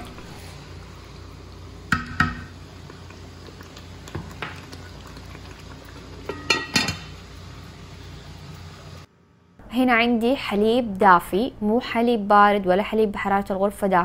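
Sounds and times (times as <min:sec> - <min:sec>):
curry simmering: 0:00.4 - 0:09.1
spoon knocking against pot: 0:01.9 - 0:02.5.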